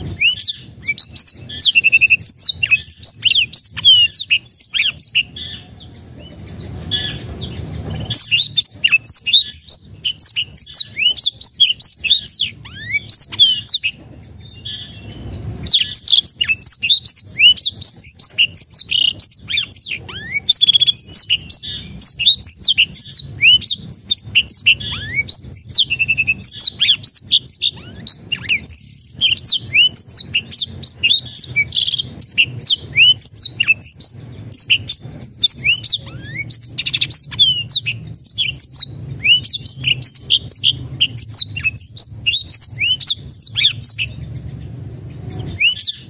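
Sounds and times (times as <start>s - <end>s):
canary singing whistled notes: 0.0s - 46.0s.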